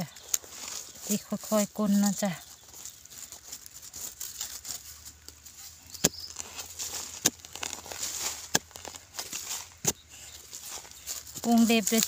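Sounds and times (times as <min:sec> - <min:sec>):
dry soil scraping and crumbling: 0:00.0 - 0:12.0
digging tool knocks: 0:06.0 - 0:06.5, 0:08.4 - 0:08.8.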